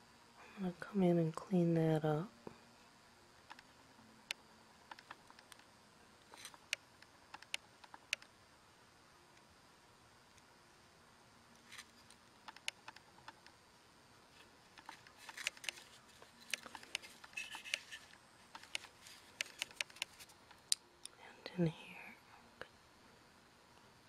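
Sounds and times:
woodburning pen clicks and scratches: 0:04.3 - 0:05.7, 0:06.3 - 0:08.3, 0:11.6 - 0:13.6, 0:14.7 - 0:21.2.

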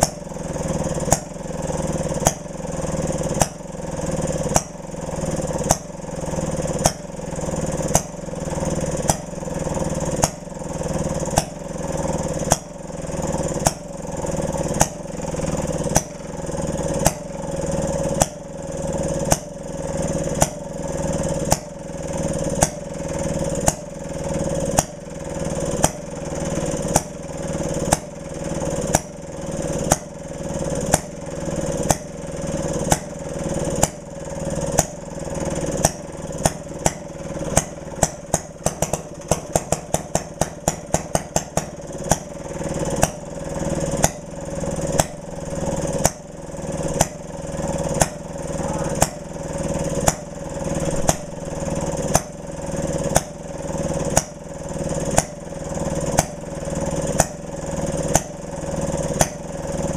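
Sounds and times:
engine running: 0:00.0 - 0:59.9
sharp engine pops: 0:03.3 - 0:03.7, 0:06.7 - 0:07.1, 0:08.9 - 0:09.4, 0:10.2 - 0:10.4, 0:12.4 - 0:12.7, 0:13.5 - 0:13.9, 0:14.6 - 0:17.3, 0:18.1 - 0:18.4, 0:20.4 - 0:20.6, 0:23.6 - 0:23.9, 0:30.9 - 0:31.1, 0:31.8 - 0:32.1, 0:32.9 - 0:33.1, 0:34.7 - 0:35.0, 0:35.8 - 0:42.3, 0:43.9 - 0:44.3, 0:44.9 - 0:45.2, 0:47.8 - 0:48.3, 0:48.9 - 0:49.2, 0:49.9 - 0:52.3, 0:53.1 - 0:53.4, 0:54.1 - 0:54.4, 0:55.1 - 0:55.4, 0:56.1 - 0:56.4, 0:57.2 - 0:57.4, 0:59.1 - 0:59.5.

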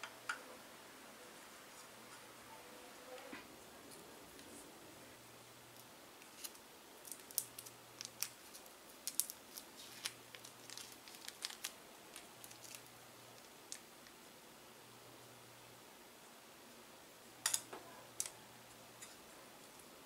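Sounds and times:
plastic wrapper crinkling: 0:06.2 - 0:13.9.

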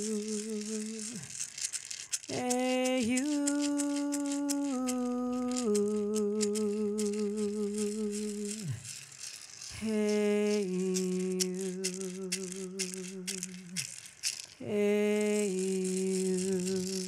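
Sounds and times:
hand rattle shaking: 0:00.0 - 0:17.0
person singing held notes: 0:00.0 - 0:17.0.

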